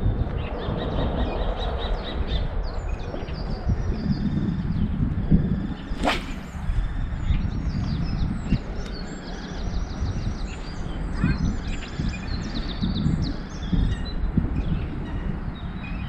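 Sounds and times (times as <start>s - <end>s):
small birds chirping: 0.4s - 16.0s
fishing rod swishing through air: 5.7s - 7.2s.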